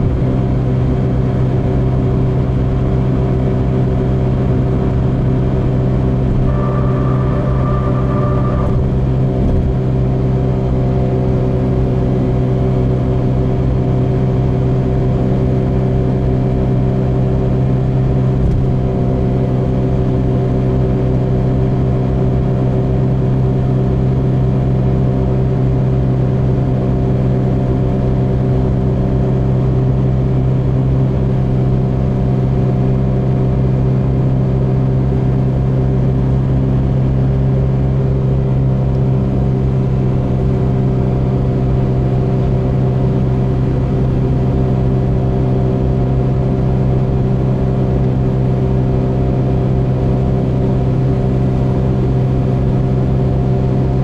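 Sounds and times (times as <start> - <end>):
car engine and road drone: 0.0 - 54.0.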